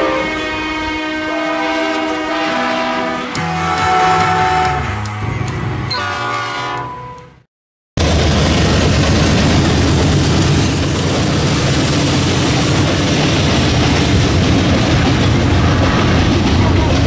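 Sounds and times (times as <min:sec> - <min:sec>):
train wheel and rail noise: 0:00.0 - 0:07.3, 0:08.0 - 0:17.0
diesel locomotive engines: 0:00.0 - 0:07.4, 0:08.0 - 0:17.0.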